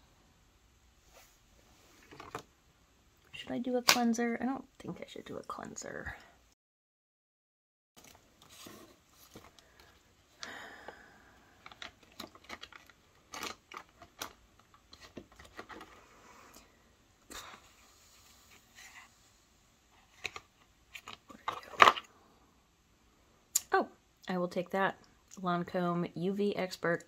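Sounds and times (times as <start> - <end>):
rustling: 8.0 - 10.1.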